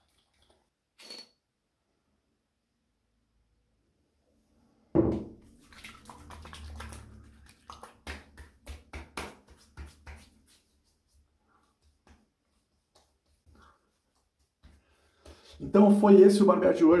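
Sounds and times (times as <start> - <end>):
hands slapping face: 7.7 - 15.4.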